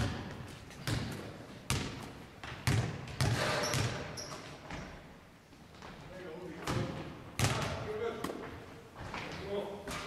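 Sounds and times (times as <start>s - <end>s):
basketball bouncing on wooden floor: 0.0s - 5.0s, 6.6s - 8.4s.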